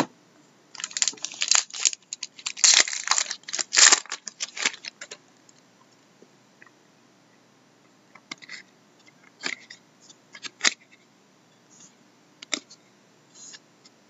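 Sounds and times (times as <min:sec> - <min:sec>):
card pack wrapper tearing: 0:00.8 - 0:05.2.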